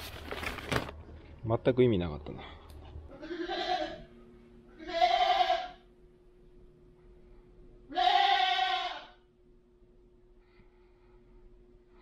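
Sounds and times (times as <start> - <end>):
goat bleating: 3.1 - 4.1, 4.7 - 5.9, 7.9 - 9.2.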